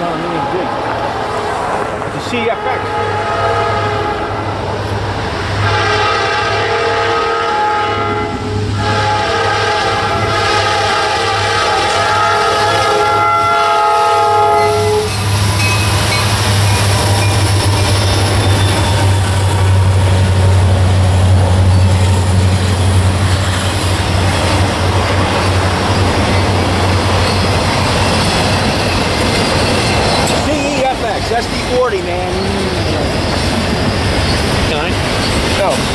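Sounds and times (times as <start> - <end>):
freight cars rumbling over rails: 0.0 - 35.9
locomotive horn chord: 2.5 - 4.4, 5.6 - 15.2
diesel engine drone: 14.0 - 35.9.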